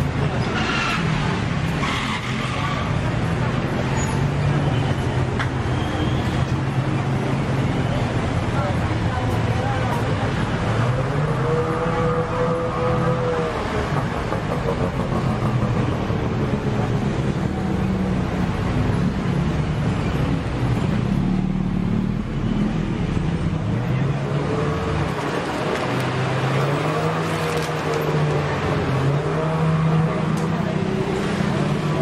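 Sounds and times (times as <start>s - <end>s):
street traffic: 0.0s - 32.0s.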